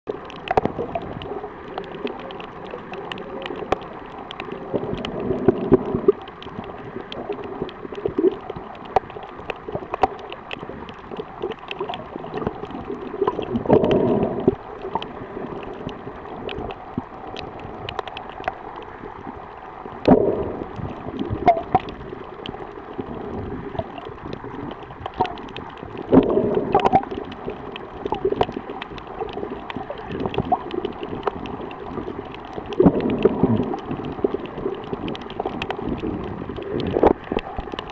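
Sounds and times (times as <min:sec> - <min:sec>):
gurgling surges of bubbles: 0:00.1 - 0:37.9
muffled underwater water wash: 0:00.1 - 0:37.9
sharp underwater clicks and crackles: 0:00.1 - 0:37.9.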